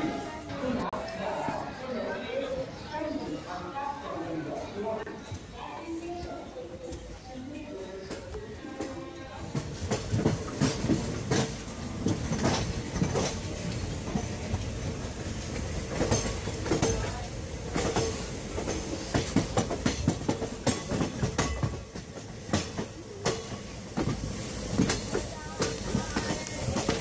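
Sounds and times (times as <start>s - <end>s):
train wheels clattering over rail joints: 9.5s - 27.0s.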